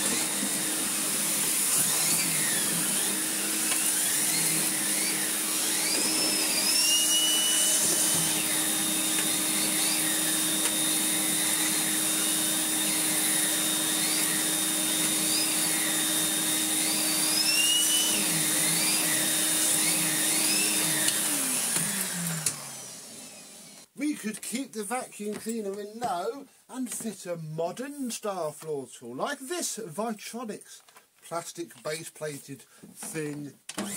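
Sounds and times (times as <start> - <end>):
vacuum cleaner running with whine: 0.0 - 23.9.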